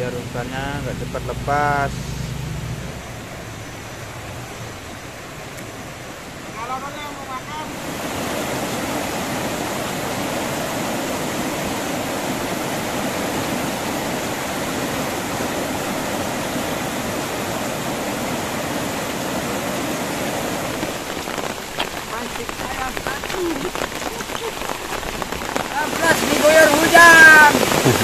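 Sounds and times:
river rushing: 0:00.0 - 0:28.0.

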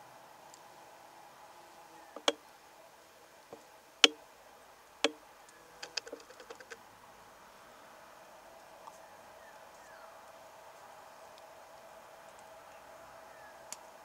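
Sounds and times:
faint steady hum: 0:00.0 - 0:14.0
sharp ticks: 0:05.8 - 0:06.8.

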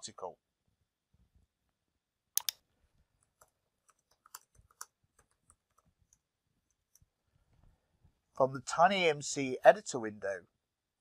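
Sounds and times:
typing on computer keyboard: 0:03.4 - 0:05.9.

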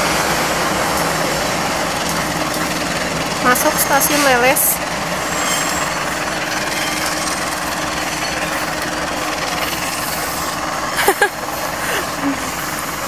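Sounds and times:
diesel locomotive running: 0:00.0 - 0:13.0.

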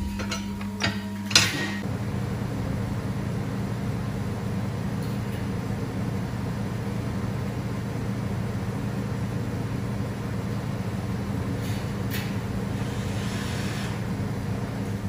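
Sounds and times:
workshop machinery humming: 0:00.0 - 0:15.0.

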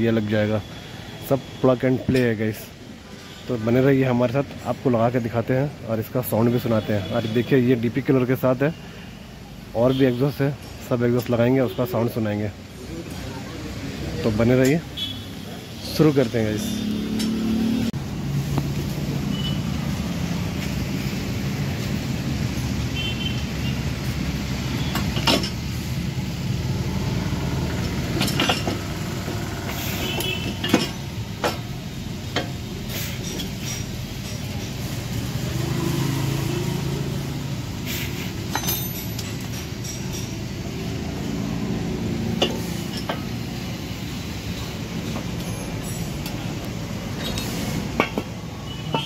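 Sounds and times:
metallic clinks of hand tools: 0:38.5 - 0:40.4.

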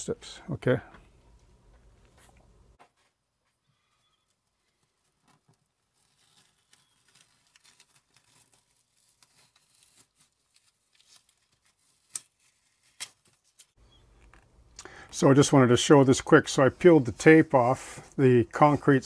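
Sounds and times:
masking tape being peeled: 0:04.3 - 0:14.4.

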